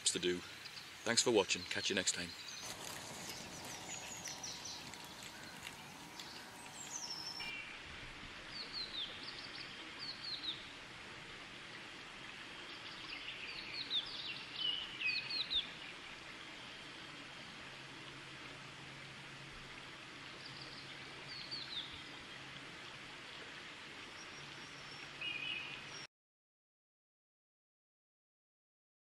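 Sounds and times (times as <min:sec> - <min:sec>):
songbirds chirping: 0:00.0 - 0:07.8, 0:12.5 - 0:17.6, 0:20.2 - 0:22.5
steady outdoor hiss: 0:00.0 - 0:26.1.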